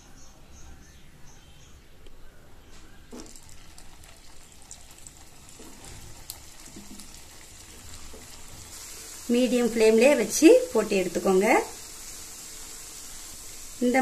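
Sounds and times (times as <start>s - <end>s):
dough balls tapping into pan: 3.1s - 8.5s
ghee sizzling and crackling: 3.1s - 14.0s.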